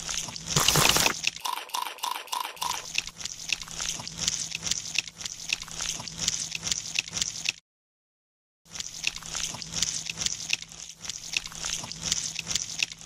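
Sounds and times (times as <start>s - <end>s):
wet squishing and clicking: 0.1s - 7.6s.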